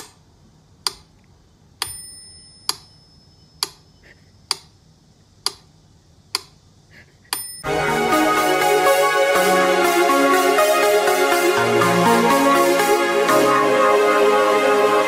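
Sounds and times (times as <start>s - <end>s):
metronome bell ringing: 1.9s - 3.6s.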